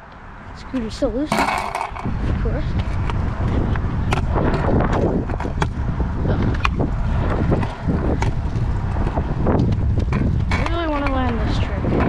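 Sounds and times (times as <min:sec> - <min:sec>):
scooter wheels rumbling on concrete: 0:00.0 - 0:12.0
scooter rattling clicks and knocks: 0:00.8 - 0:02.1, 0:06.4 - 0:12.0.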